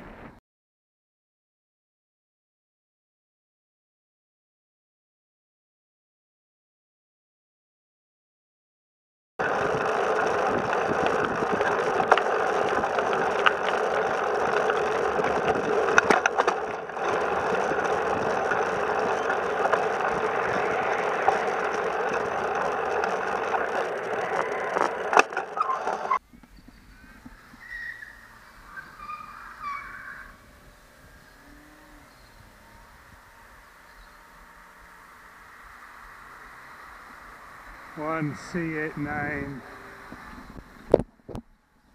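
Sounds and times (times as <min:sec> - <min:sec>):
bicycle clicks and rattles: 0:09.4 - 0:26.6
bicycle tyres rolling on pavement: 0:09.4 - 0:41.9
faint outdoor sounds: 0:09.4 - 0:41.9
wind on microphone: 0:09.5 - 0:24.8, 0:38.9 - 0:41.5.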